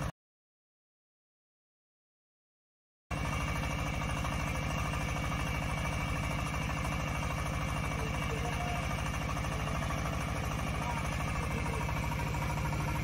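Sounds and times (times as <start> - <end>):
drilling rig engine running: 3.1 - 13.0.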